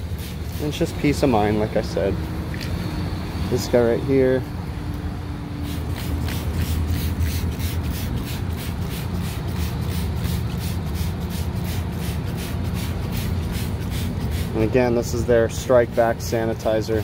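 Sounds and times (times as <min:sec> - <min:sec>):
steady low hum: 0:00.0 - 0:17.0
spray bottle squirting: 0:05.6 - 0:14.6.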